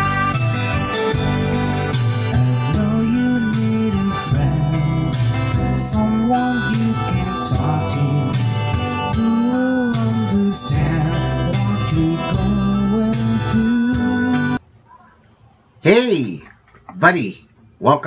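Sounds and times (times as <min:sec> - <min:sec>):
backing track with guitar and beat: 0:00.0 - 0:14.6
man singing karaoke: 0:02.1 - 0:14.6.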